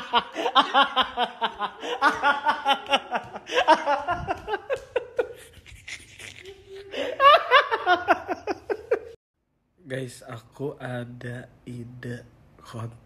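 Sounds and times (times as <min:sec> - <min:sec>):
hearty laughter: 0:00.0 - 0:09.2.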